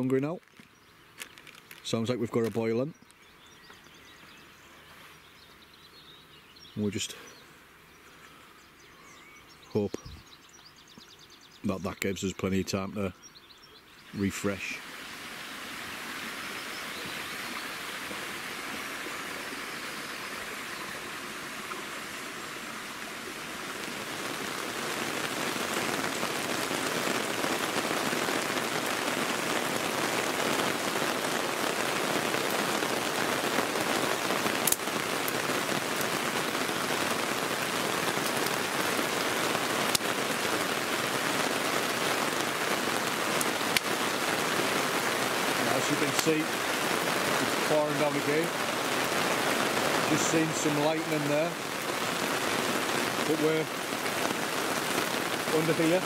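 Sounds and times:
heavy rain pouring: 0:14.0 - 0:56.0.

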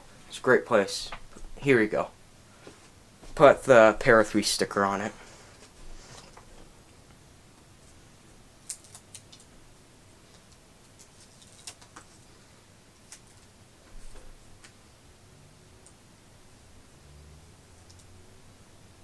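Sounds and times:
sticker backing paper crackling: 0:10.3 - 0:12.2.

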